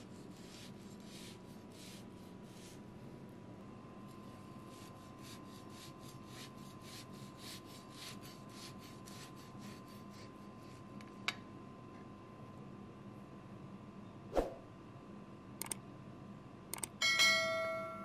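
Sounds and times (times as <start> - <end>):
sharp click: 15.6 - 15.8, 16.7 - 17.0.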